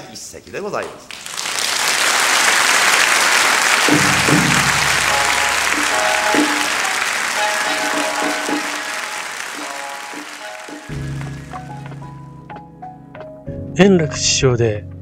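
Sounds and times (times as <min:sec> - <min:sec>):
audience applauding: 0:01.1 - 0:12.1
low drum strikes: 0:03.8 - 0:07.2
short repeated music notes: 0:03.8 - 0:12.0.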